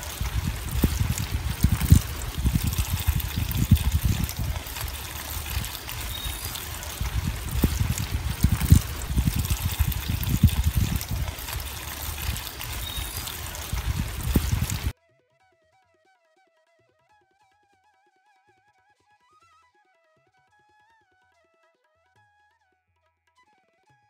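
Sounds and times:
hands splashing water: 0:00.0 - 0:14.9
water pouring into bowl: 0:00.0 - 0:14.9.

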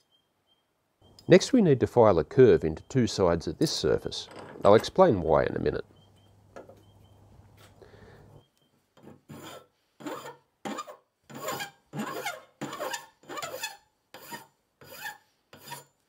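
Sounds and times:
hand file rasping on metal: 0:09.0 - 0:16.0.

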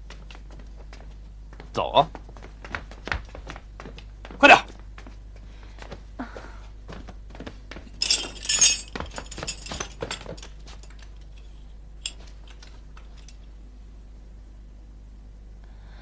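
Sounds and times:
metal chain jangling: 0:07.9 - 0:13.5.

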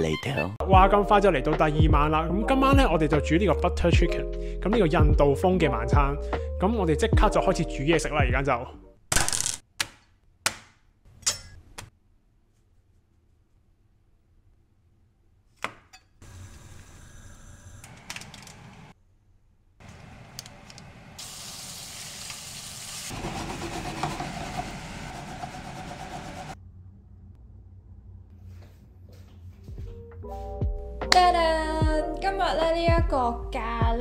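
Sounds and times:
food sizzling in pan: 0:21.2 - 0:23.2.

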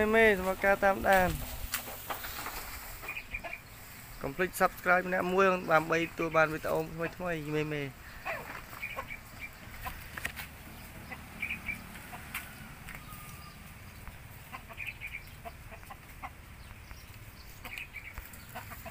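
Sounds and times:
chickens clucking: 0:00.0 - 0:18.9.

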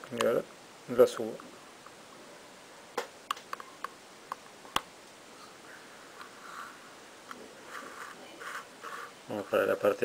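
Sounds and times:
burin scratching metal: 0:07.6 - 0:09.8.

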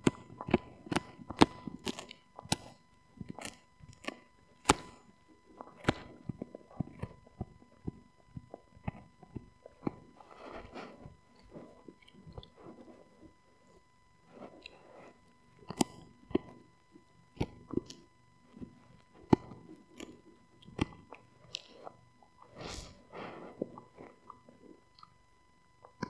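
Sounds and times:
dog gnawing chew bone: 0:00.1 - 0:04.9, 0:05.5 - 0:13.0.

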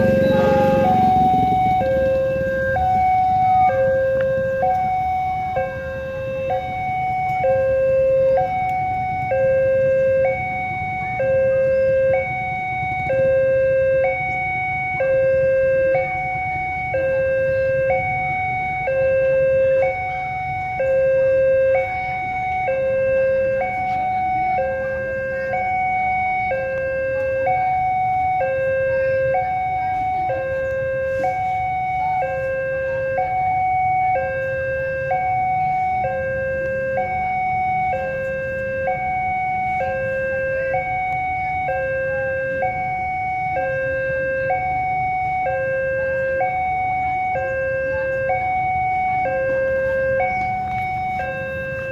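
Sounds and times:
low rumble: 0:00.0 - 0:03.6
two-tone electronic alarm: 0:00.0 - 0:51.9.

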